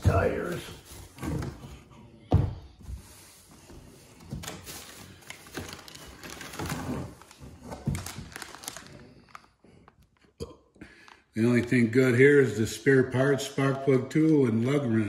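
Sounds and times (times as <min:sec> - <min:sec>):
plastic packaging crinkling: 0:04.4 - 0:10.3.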